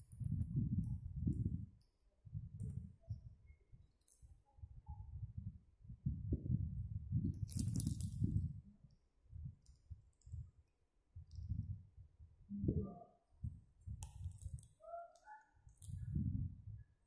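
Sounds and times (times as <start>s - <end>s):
plastic wrapper crinkling: 7.4s - 8.3s, 14.0s - 16.0s.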